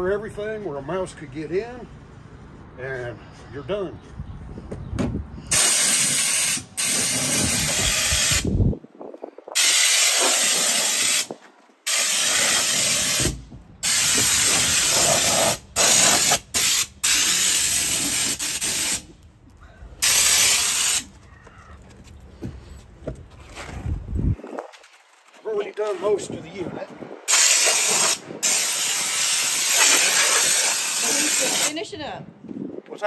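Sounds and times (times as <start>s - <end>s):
spray gun hissing: 5.5s - 8.5s, 9.6s - 11.3s, 11.9s - 19.1s, 20.0s - 21.1s, 27.3s - 31.7s.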